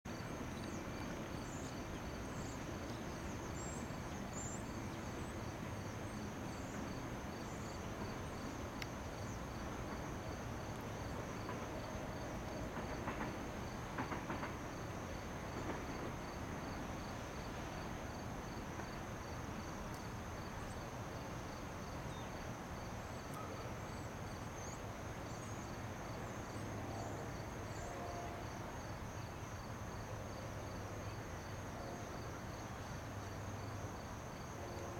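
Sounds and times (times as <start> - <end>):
insects chirping: 0.1 - 34.9.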